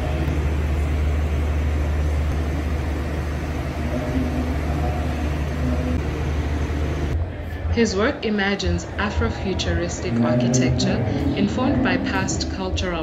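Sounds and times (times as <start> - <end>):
faint held tones: 0.0 - 7.2
loud low drone: 0.0 - 7.4, 9.7 - 13.0.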